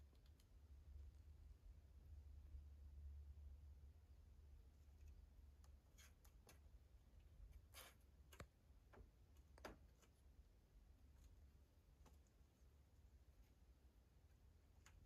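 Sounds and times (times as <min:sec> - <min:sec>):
faint clicks and ticks: 0:00.0 - 0:01.6
low steady hum: 0:00.0 - 0:15.0.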